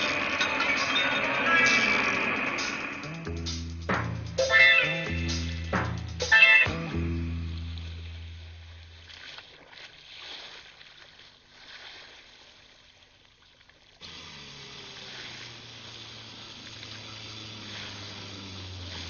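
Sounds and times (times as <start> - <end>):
motorboat engine droning: 0.0 - 9.4, 14.0 - 19.0
water washing and splashing: 7.5 - 19.0.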